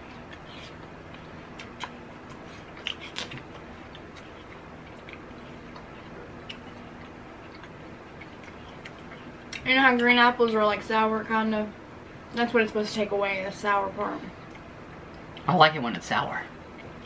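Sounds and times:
faint hum: 0:00.0 - 0:17.0
apple crunching: 0:00.1 - 0:10.1.

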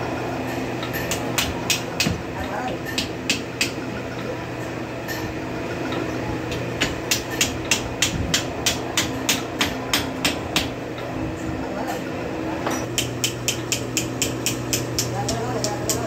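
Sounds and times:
low workshop hum: 0:00.0 - 0:16.0
hammer striking metal: 0:00.5 - 0:03.8, 0:06.5 - 0:10.8, 0:12.6 - 0:16.0.

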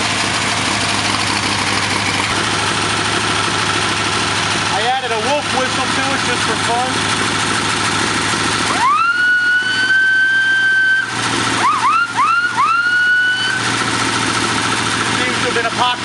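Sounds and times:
engine idling: 0:00.0 - 0:16.0
whistle blasts and toots: 0:08.8 - 0:13.6.

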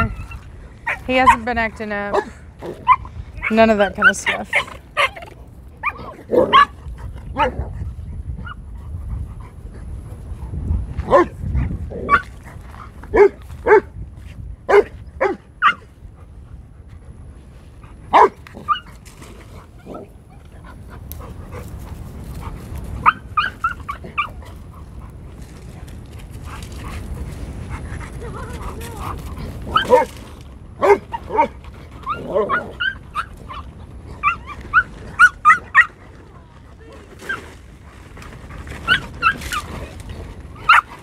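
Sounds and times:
puppies yelping and barking: 0:23.0 - 0:24.5, 0:30.9 - 0:36.0, 0:38.8 - 0:39.7.

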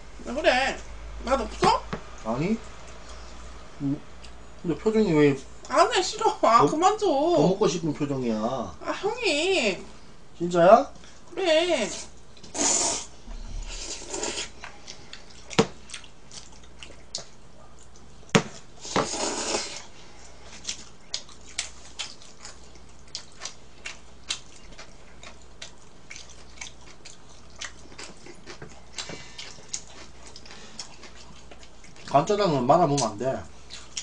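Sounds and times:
noisy bursts: 0:12.5 - 0:14.6.

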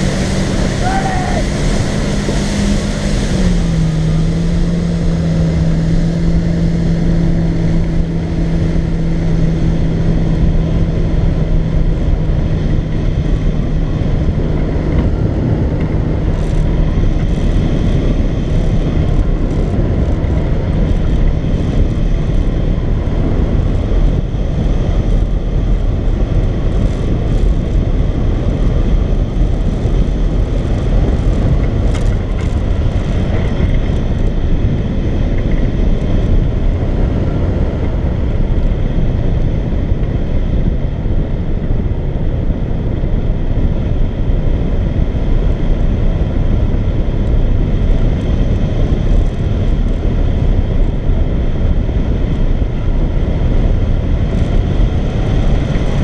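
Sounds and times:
boat engine hum: 0:00.0 - 0:24.1
wind rushing over microphone: 0:00.0 - 0:56.0.

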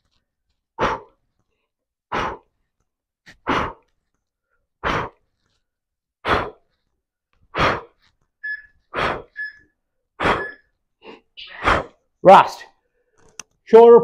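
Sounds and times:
man's forceful exhalations: 0:00.8 - 0:01.2, 0:02.1 - 0:02.5, 0:03.3 - 0:03.9, 0:04.8 - 0:05.2, 0:06.2 - 0:06.7, 0:07.5 - 0:08.0.

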